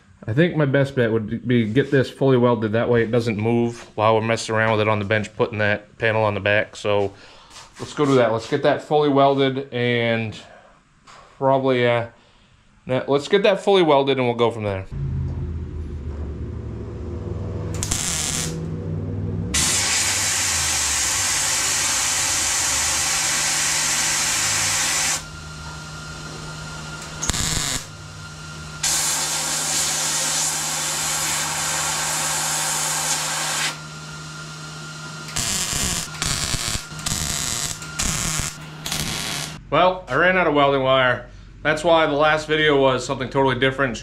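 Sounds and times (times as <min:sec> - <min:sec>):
steady low hum: 0:14.6 - 0:32.8, 0:33.7 - 0:44.0
welder laying weld: 0:17.7 - 0:18.6, 0:19.6 - 0:28.0, 0:28.7 - 0:33.8, 0:35.3 - 0:39.6.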